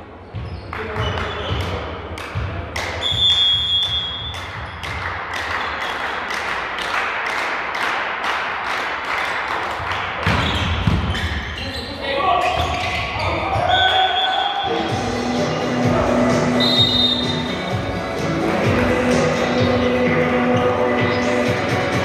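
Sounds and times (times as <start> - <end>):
rhythmic clapping: 0.8 - 10.3, 17.3 - 20.5
high whistle: 3.0 - 4.3, 13.7 - 14.8, 16.5 - 17.5.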